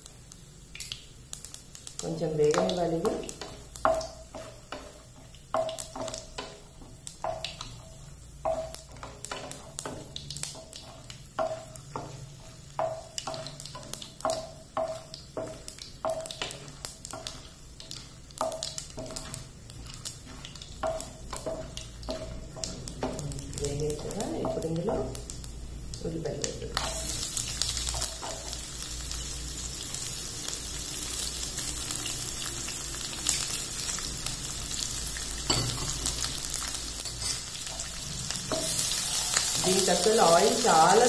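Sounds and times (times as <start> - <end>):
faint sizzle: 0.0 - 41.0
spatula scraping a pan: 8.5 - 25.1.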